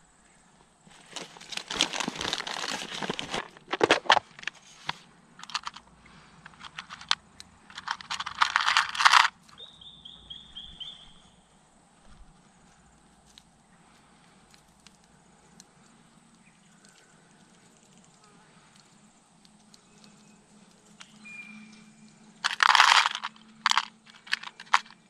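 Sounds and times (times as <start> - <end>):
plastic box handled: 0.9 - 5.8, 6.4 - 9.4, 22.4 - 25.0
rustling through backpack: 0.9 - 5.8
small lead weights clattering: 5.4 - 9.4, 22.3 - 25.0
bird chirping: 9.5 - 11.6, 15.4 - 22.4.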